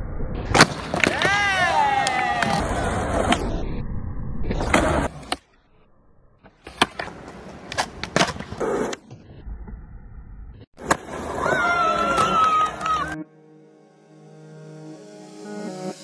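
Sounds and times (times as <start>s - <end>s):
skateboard wheels rolling on concrete: 0.5s - 3.8s, 4.4s - 5.4s, 6.4s - 13.2s.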